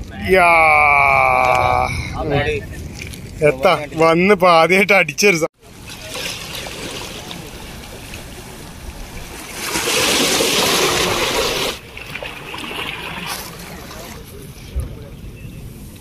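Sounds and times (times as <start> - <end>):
waves splashing against rocks: 5.6 - 15.2.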